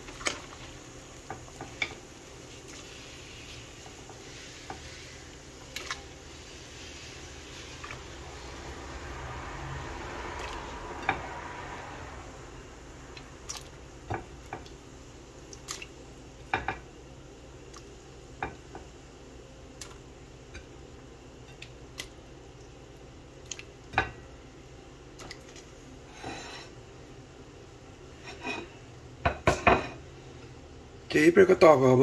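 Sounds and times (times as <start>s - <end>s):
knocks and clinks of pot and dishes: 29.3s - 30.0s.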